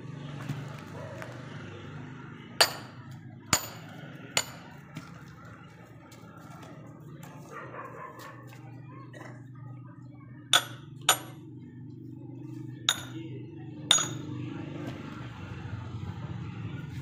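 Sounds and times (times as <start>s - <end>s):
axe chopping firewood: 2.6s - 3.0s, 3.6s - 5.1s, 10.6s - 11.4s, 12.9s - 13.2s, 13.9s - 14.2s.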